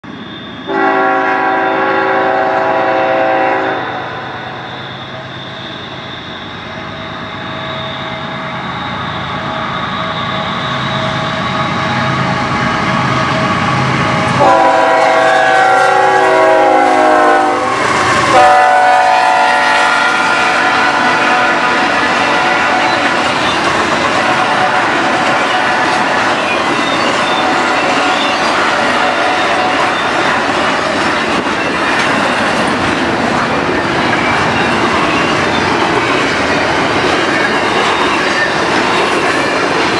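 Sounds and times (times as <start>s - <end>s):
locomotive air horn: 0.7s - 5.9s, 14.3s - 23.3s, 24.0s - 26.1s, 27.4s - 30.2s.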